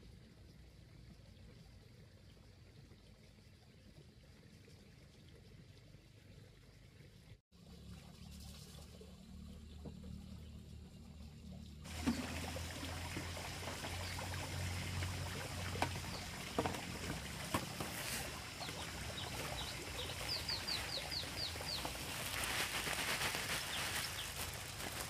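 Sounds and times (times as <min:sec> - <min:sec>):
bird chirping: 0:16.0 - 0:22.2.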